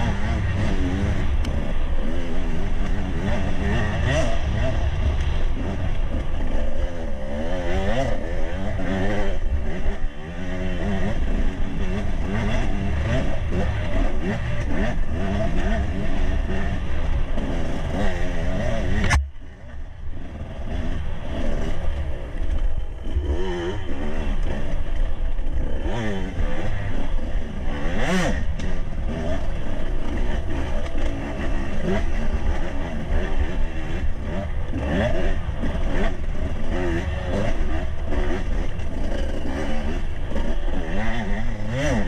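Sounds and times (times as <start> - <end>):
motorcycle engine revving: 0.0 - 42.0
sharp click: 19.0 - 19.3.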